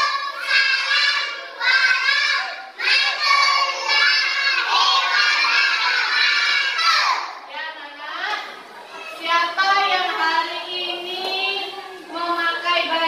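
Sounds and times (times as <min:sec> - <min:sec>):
children chanting in unison: 0:00.0 - 0:07.5.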